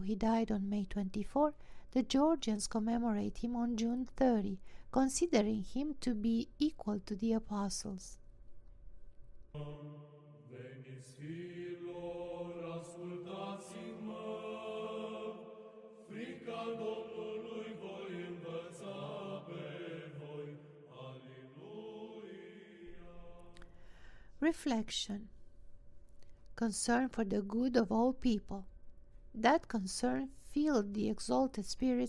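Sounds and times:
church chant: 0:09.6 - 0:23.8.

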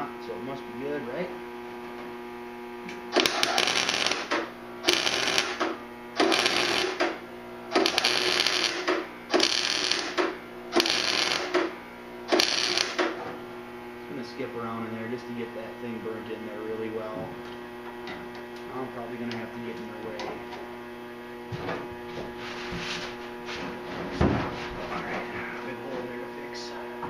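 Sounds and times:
steady electrical hum: 0:00.0 - 0:27.0
welding arc noise: 0:02.8 - 0:21.3.

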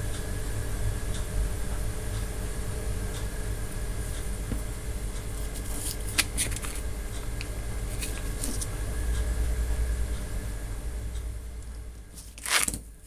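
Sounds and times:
foil sachet crinkling: 0:12.2 - 0:12.8.

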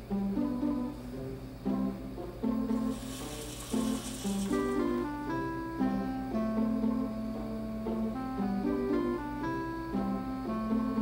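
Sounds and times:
background music plucked notes: 0:00.0 - 0:11.0
robot arm servo whir: 0:02.8 - 0:05.1.

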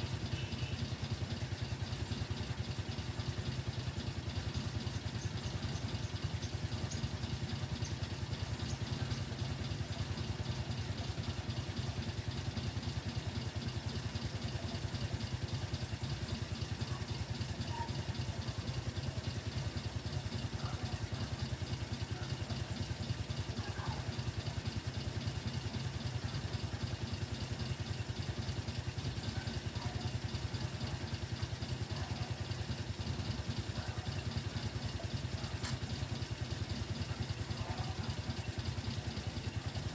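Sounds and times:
small engine idling: 0:00.0 - 0:39.9.

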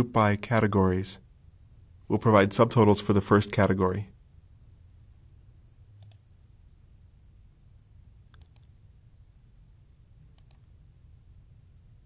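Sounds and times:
low electrical hum: 0:00.0 - 0:12.0
faint computer mouse clicks: 0:06.0 - 0:06.2, 0:08.3 - 0:08.8, 0:10.2 - 0:10.8.

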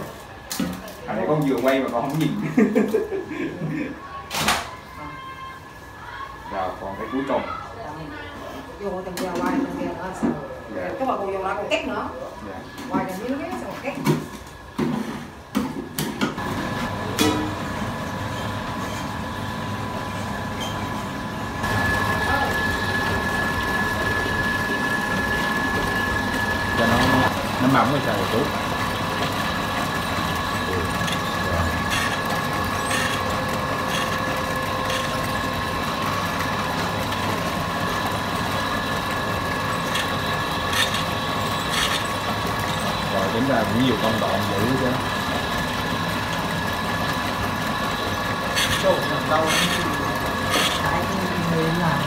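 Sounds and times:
dough roller machine humming: 0:00.0 - 0:52.0
electric motor running: 0:16.4 - 0:52.0.

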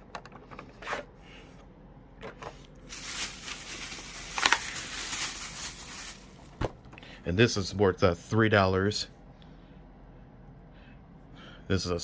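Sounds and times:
soft handling sounds: 0:00.4 - 0:07.1
plastic bag rustling: 0:02.8 - 0:06.9.

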